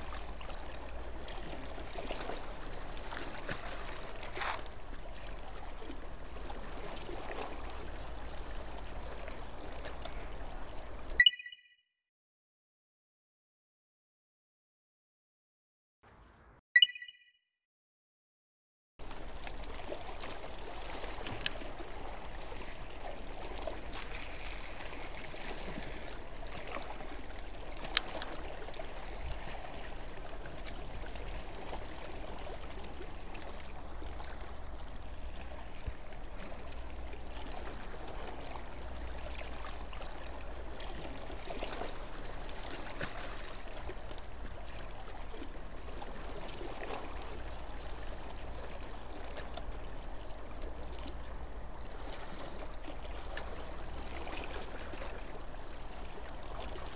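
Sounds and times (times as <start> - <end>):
water lapping against quay: 0.0 - 11.2, 19.0 - 56.9.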